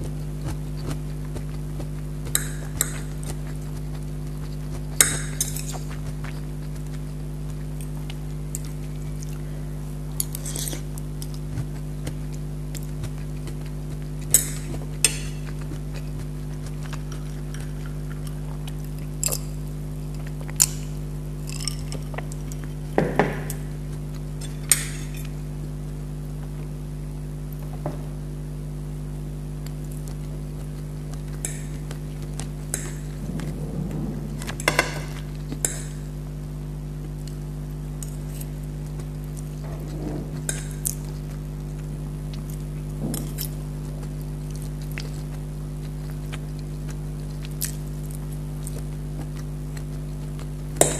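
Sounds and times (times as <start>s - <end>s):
steady low hum: 0.0s - 50.9s
cutlery clinking on plates: 34.5s - 36.0s.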